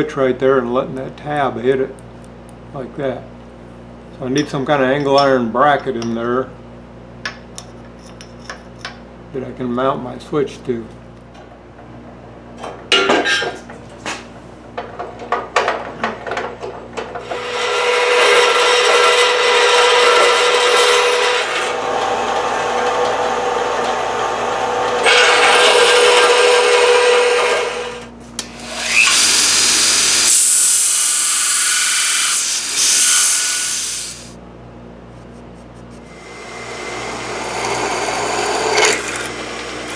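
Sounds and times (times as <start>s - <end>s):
belt grinder grinding metal: 17.2s - 34.3s, 36.1s - 39.9s
bandsaw cutting metal: 17.2s - 34.4s, 36.1s - 39.9s.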